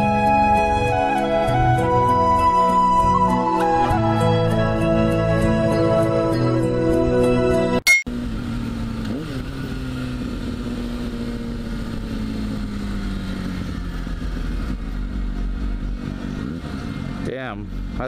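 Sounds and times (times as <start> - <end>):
background music: 0.0 - 7.8
motorcycle engine slowing: 8.1 - 18.0.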